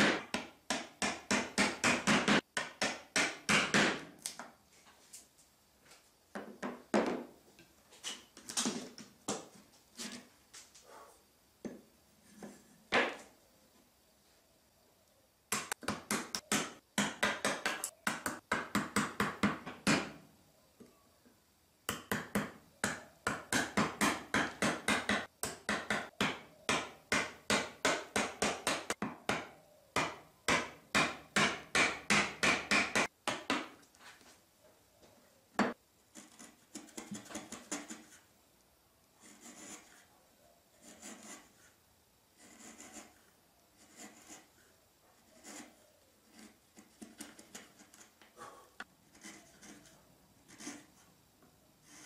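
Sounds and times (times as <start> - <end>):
hammer tapping chisel into wood: 0.0 - 4.0, 21.9 - 33.7
chisel scraping wood: 36.1 - 38.2, 39.2 - 40.0, 40.8 - 41.6, 42.4 - 43.2, 43.8 - 44.5, 45.2 - 48.1, 49.1 - 50.9.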